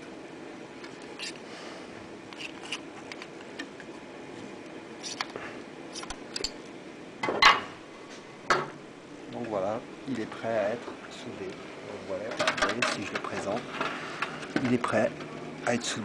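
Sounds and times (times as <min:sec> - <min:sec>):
metallic clatter: 0:12.3 - 0:13.9.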